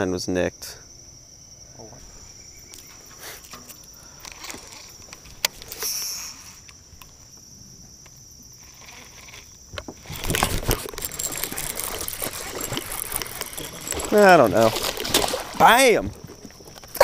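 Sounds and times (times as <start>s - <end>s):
insects chirring: 0.0s - 17.0s
fishing tackle clicks and rustles: 2.7s - 7.2s, 8.1s - 17.0s.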